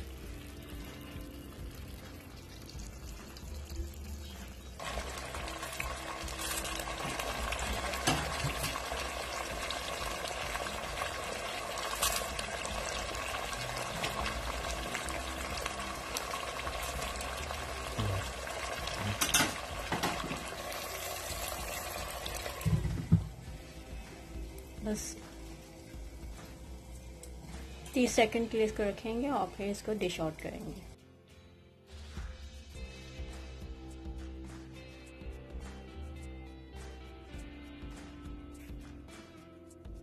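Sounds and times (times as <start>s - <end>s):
food sizzling in oil: 4.8s - 30.9s.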